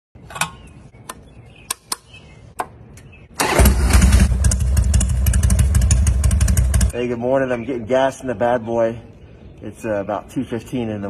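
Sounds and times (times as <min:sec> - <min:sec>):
motorcycle engine starting and idling: 0:03.4 - 0:07.0.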